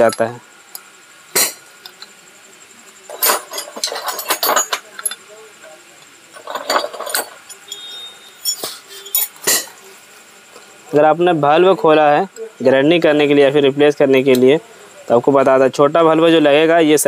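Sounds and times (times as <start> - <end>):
metal engine parts clinking: 0.0 - 0.4, 3.0 - 5.4, 6.0 - 9.8.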